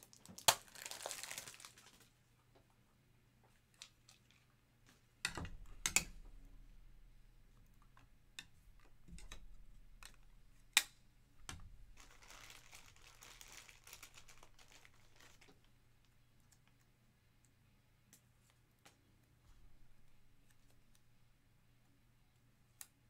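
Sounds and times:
foil wrapper crinkling: 0:00.0 - 0:02.2, 0:11.9 - 0:15.8.

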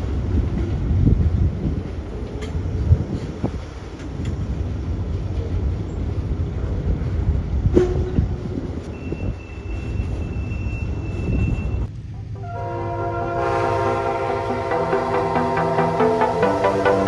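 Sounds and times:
freight cars rumbling: 0:00.0 - 0:17.0
electronic music: 0:12.4 - 0:17.0.

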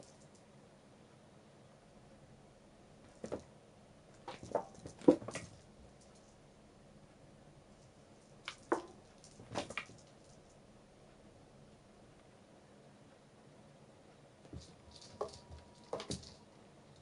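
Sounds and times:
cat paws tapping objects on floor: 0:04.2 - 0:05.6, 0:08.4 - 0:10.4, 0:14.5 - 0:16.4.

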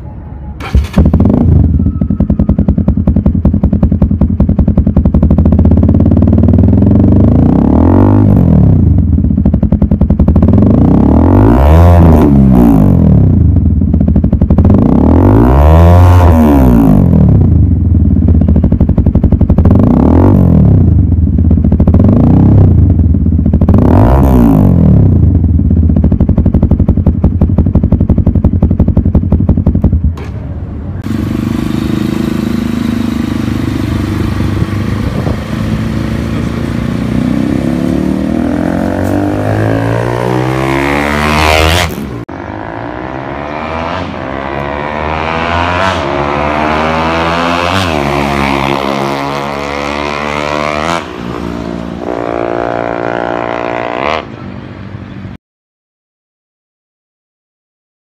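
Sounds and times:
motorcycle engine idling and revving: 0:00.0 - 0:55.4
motorcycle passing by: 0:31.0 - 0:54.5.

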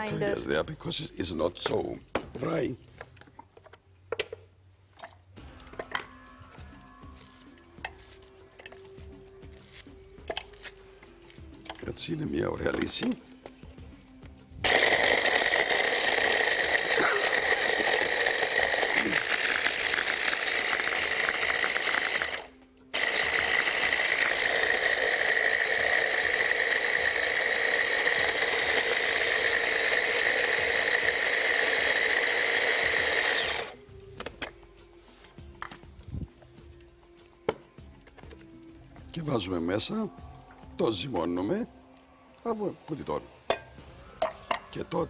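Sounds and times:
hand blender grinding bread: 0:14.6 - 0:33.8.

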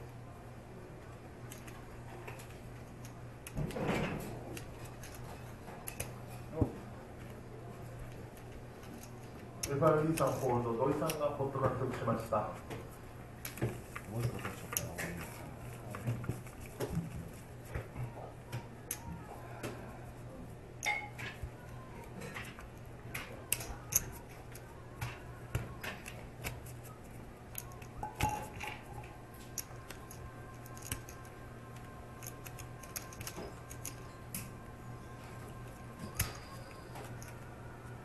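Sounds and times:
steady low hum: 0:00.0 - 0:38.0
poker chips clicking together: 0:29.5 - 0:31.4, 0:32.2 - 0:34.0.

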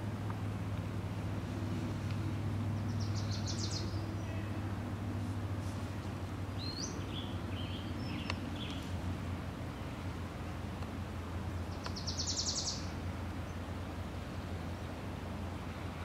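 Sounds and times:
birds chirping: 0:02.4 - 0:04.8, 0:05.8 - 0:09.0, 0:11.5 - 0:14.9.

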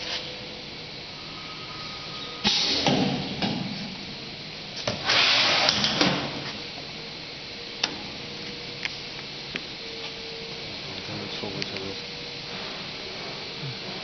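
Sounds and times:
faint machine hum: 0:00.0 - 0:14.0
air hiss with clunks: 0:02.4 - 0:04.0.

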